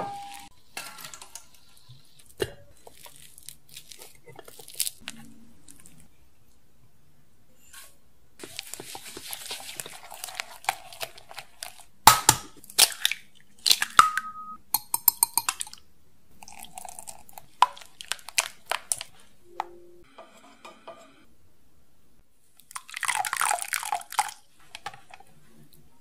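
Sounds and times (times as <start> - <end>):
eggs cracked into bowl: 12.1 - 15.8.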